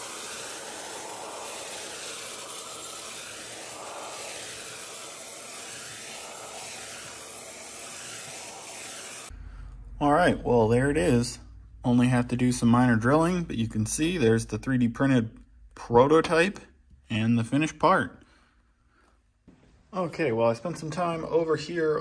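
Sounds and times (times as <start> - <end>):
vacuum cleaner sucking up metal chips: 0.0 - 9.3.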